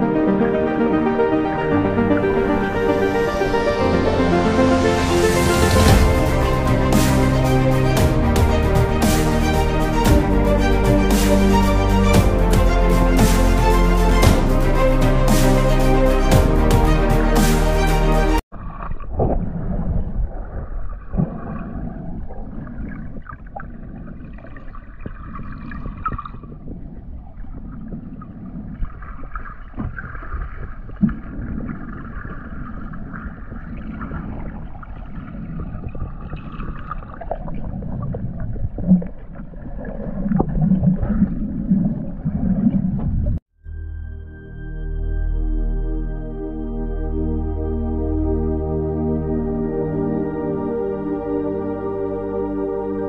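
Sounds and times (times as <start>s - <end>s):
underwater rumble of moving water: 18.5s - 43.4s.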